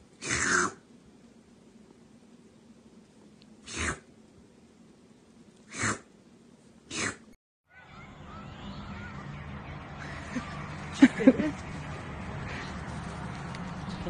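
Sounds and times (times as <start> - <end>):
kitten sneezing: 0.2 - 0.8, 3.6 - 4.1, 5.7 - 6.1, 6.9 - 7.3.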